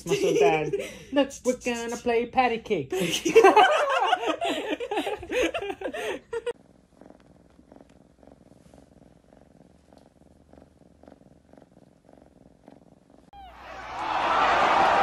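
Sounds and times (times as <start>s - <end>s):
kitten purring: 5.1s - 13.6s.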